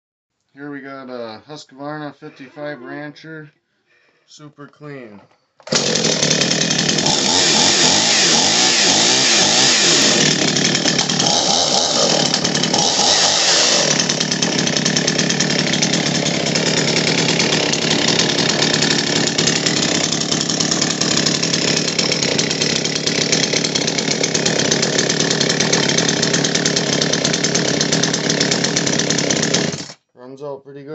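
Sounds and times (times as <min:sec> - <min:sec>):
chainsaw engine revving: 0:05.6 - 0:30.0.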